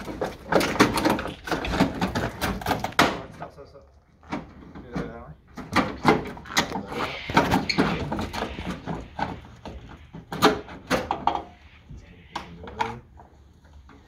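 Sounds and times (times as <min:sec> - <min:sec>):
indistinct voices: 0:04.8 - 0:13.2.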